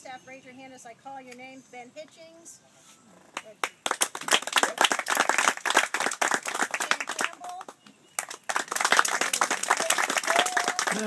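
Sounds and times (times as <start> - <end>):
group applauding: 3.6 - 11.0.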